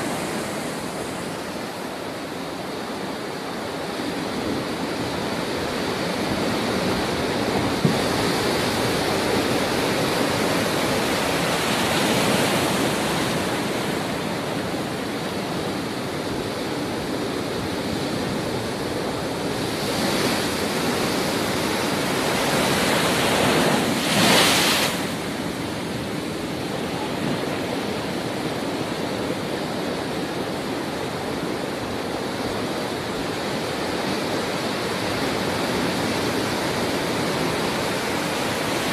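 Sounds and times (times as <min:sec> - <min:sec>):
waves crashing: 0:00.0 - 0:38.9.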